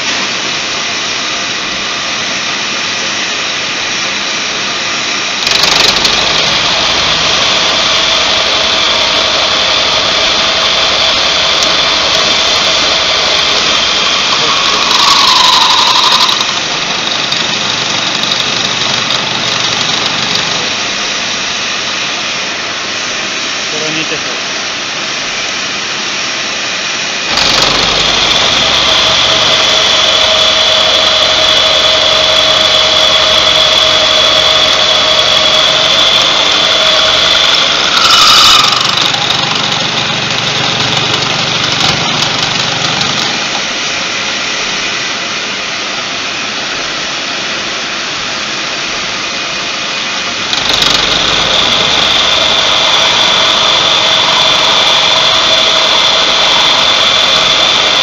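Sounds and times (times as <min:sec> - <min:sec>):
milling cutter whine: 0:03.4 - 0:22.1, 0:27.0 - 0:45.8, 0:48.9 - 0:58.0
machine low hum: 0:05.2 - 0:21.4, 0:27.2 - 0:45.2
metal cutter scrape: 0:05.4 - 0:20.8, 0:27.3 - 0:43.7, 0:50.5 - 0:58.0.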